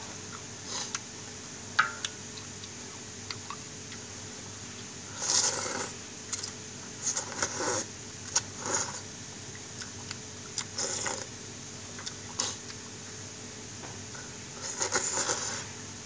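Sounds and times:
slurping noodles: 5.1 - 6.0, 7.0 - 9.0, 10.8 - 11.3, 14.6 - 15.7.

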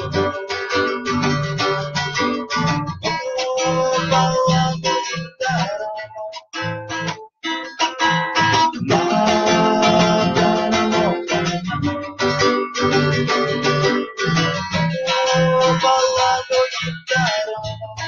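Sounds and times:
strummed acoustic guitar: 0.0 - 18.0
man chanting in sung melody: 3.1 - 6.1, 8.8 - 11.4.

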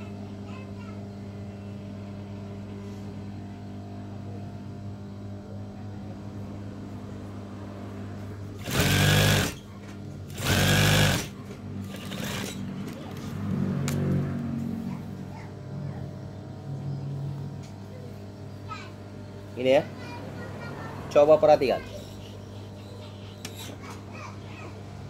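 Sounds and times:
fast machine stitching: 8.6 - 9.6, 10.3 - 12.8
sewing machine motor humming: 8.6 - 9.6, 10.3 - 12.8.

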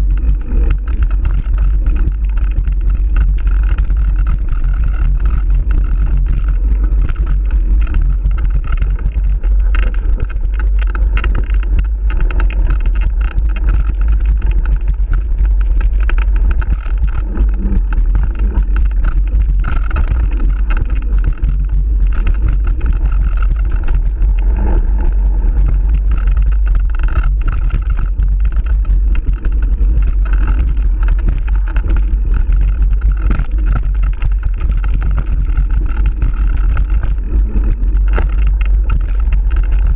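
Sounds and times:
bike rattling on rough trail: 0.0 - 39.9
wind rumble on microphone: 0.0 - 39.9.

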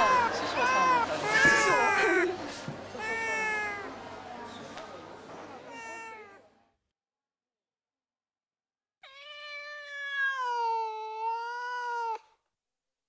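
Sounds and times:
cat meowing: 3.0 - 3.9, 5.7 - 6.4, 9.0 - 12.3.

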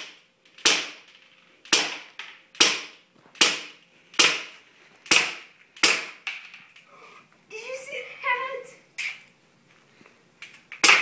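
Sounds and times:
airsoft pistol shots: 0.0 - 1.1, 1.7 - 4.5, 5.1 - 6.2.

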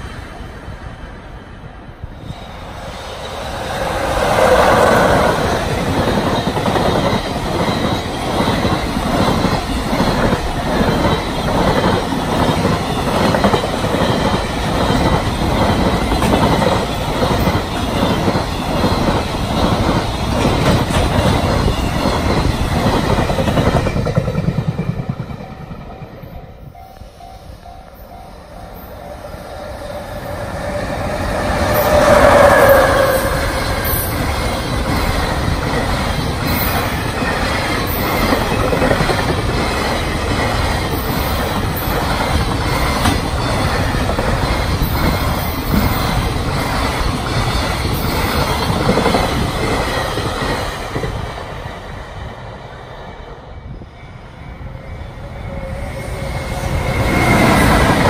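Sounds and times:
freight train passing: 0.0 - 58.0
crossing alarm ringing: 25.5 - 35.5.

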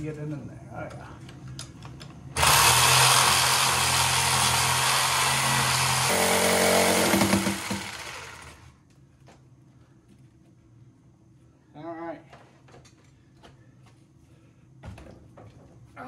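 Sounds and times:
reciprocating saw cutting metal pipe: 2.4 - 8.5.

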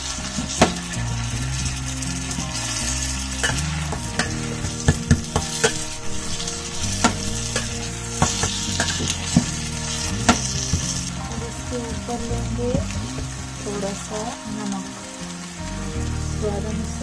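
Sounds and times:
spatula scraping a pan: 0.0 - 12.3
vegetables sizzling in oil: 0.0 - 17.0.

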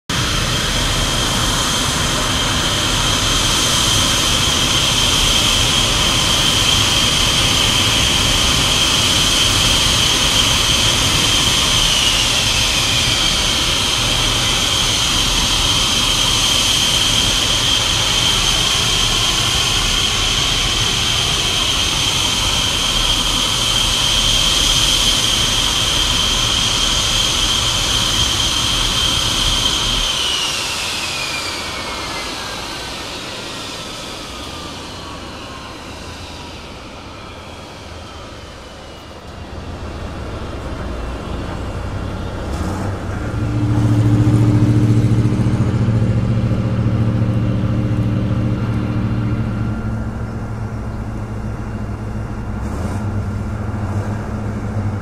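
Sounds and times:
jet engine whine: 0.1 - 55.0
broad rushing noise: 34.6 - 55.0
whine sliding down in pitch: 39.2 - 55.0.

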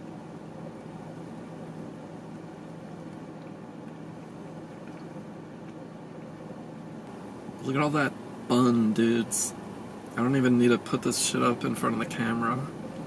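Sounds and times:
car interior hum and hiss: 0.0 - 13.0.

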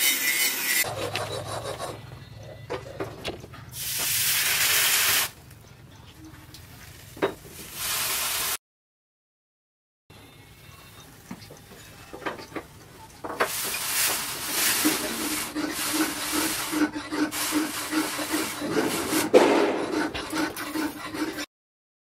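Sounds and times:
hot steel sizzling in water: 3.8 - 5.3, 7.6 - 8.6, 13.5 - 18.6.

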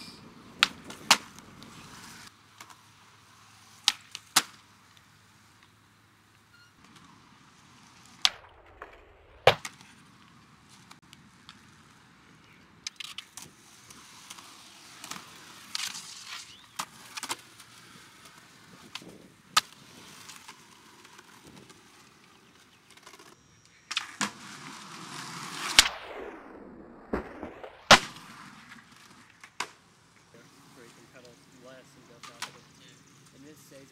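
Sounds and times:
skateboard wheels rolling on concrete: 0.0 - 33.9
skateboard popping and landing clacks: 0.6 - 2.8, 8.1 - 10.0, 27.0 - 29.8
sweep falling in pitch: 25.6 - 28.0.

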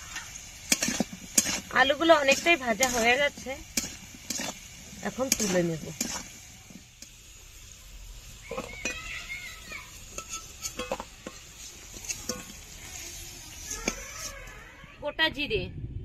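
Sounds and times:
metal spatula clinking on wok: 10.1 - 11.4.

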